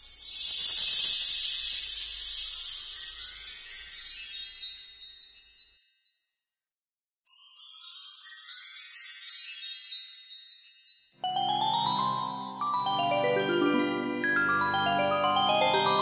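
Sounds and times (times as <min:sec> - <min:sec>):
twinkling run rising in pitch: 0:00.0 - 0:05.9
glockenspiel-like melody: 0:00.0 - 0:06.5, 0:07.3 - 0:16.0
high tinkling chimes: 0:00.0 - 0:06.6, 0:07.3 - 0:16.0.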